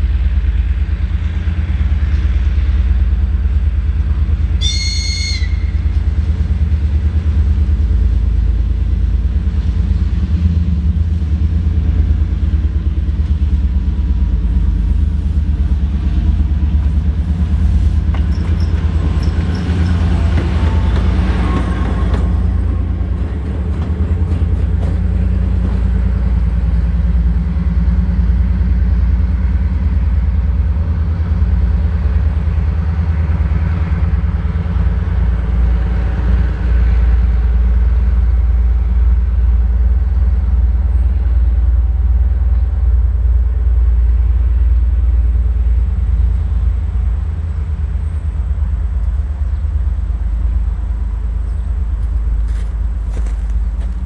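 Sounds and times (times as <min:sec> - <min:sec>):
locomotive diesel engine rumbling: 0:00.0 - 0:54.0.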